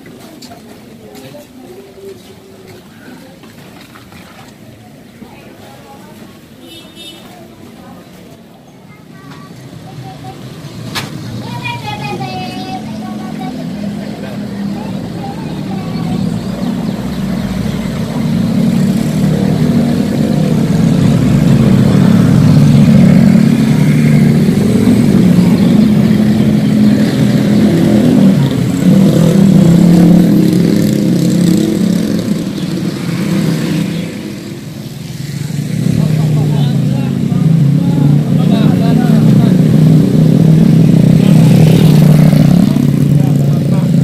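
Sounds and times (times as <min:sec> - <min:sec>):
vehicle engine running: 0:11.6 - 0:44.0.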